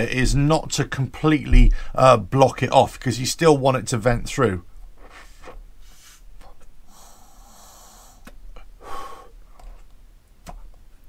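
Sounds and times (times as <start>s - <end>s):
breath hissing through gas cap: 6.9s - 9.8s.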